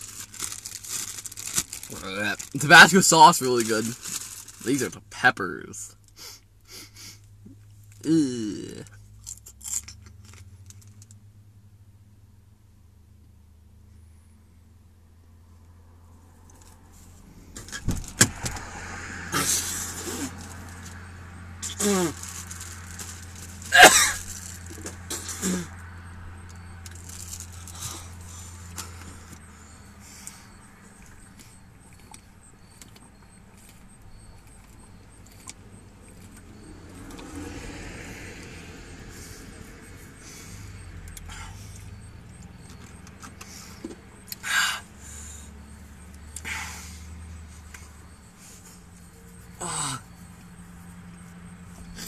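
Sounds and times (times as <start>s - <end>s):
man groaning: 8.0s - 8.9s, 21.7s - 22.2s, 49.6s - 50.1s
man's short vocal outburst: 8.0s - 8.9s, 21.7s - 22.2s
car cabin hum: 14.9s - 37.3s.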